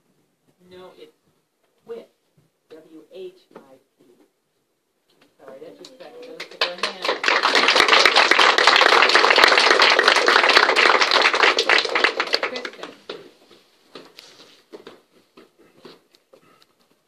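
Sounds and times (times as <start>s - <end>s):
audience clapping: 6.2s - 13.2s.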